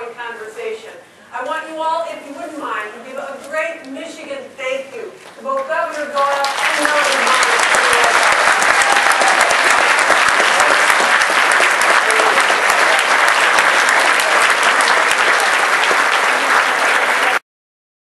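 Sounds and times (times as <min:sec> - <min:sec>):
audience applauding: 0:06.2 - 0:17.4.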